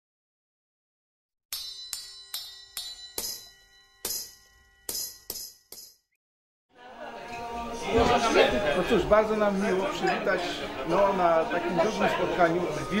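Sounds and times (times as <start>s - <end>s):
struck bell notes ringing: 1.5s - 6.1s.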